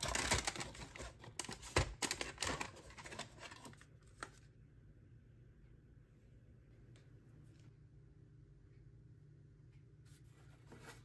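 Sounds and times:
cardboard and plastic rustling: 0.0s - 4.5s.

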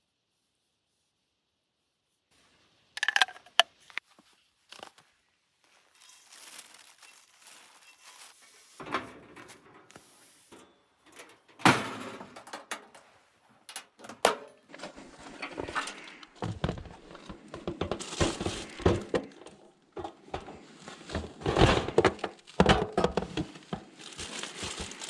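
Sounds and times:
rustling: 3.0s - 11.0s, 14.7s - 25.0s
metal knocks and thumps: 14.0s - 24.0s.

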